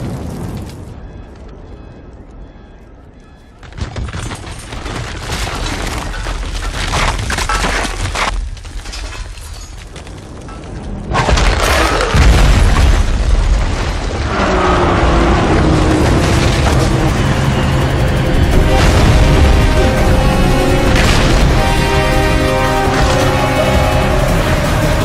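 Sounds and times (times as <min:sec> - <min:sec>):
crashing debris: 0:03.7 - 0:25.0
deep rumbling: 0:10.0 - 0:25.0
loud boom: 0:18.3 - 0:24.6.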